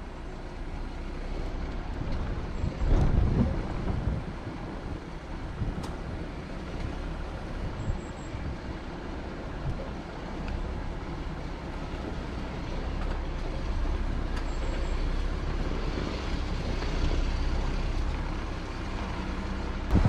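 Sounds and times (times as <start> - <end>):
pickup engine and tyres rumbling: 0.0 - 20.0.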